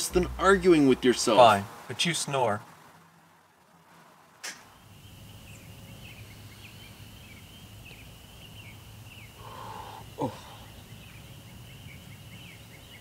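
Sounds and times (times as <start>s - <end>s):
hissy noise: 0.0s - 5.5s, 8.7s - 10.7s.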